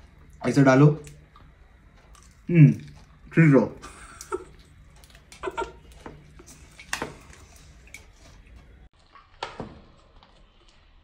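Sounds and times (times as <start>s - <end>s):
mouth eating sounds: 2.1s - 8.2s.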